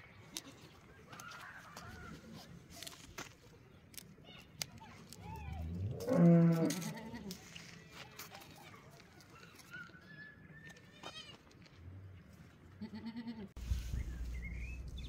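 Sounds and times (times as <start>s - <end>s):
goat bleating: 6.4s - 7.4s, 12.8s - 13.6s.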